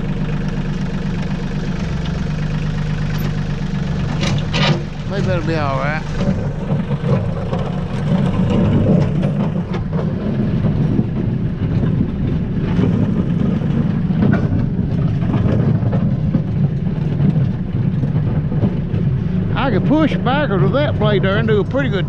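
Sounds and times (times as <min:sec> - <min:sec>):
tractor engine running: 0:00.0 - 0:22.0.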